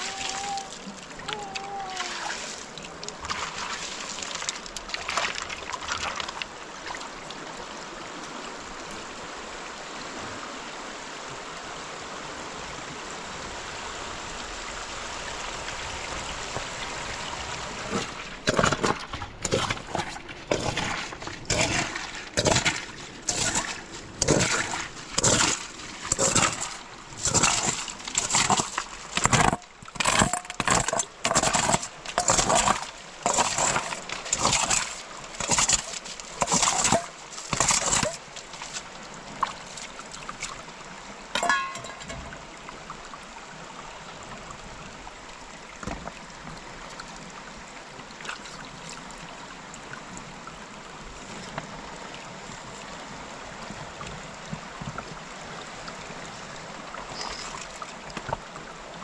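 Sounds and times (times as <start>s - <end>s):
splashes in muddy pool: 0.0s - 7.1s, 16.9s - 39.7s
flowing river rushing: 0.0s - 59.0s
water thrown onto stones: 17.9s - 38.2s, 41.3s - 42.3s.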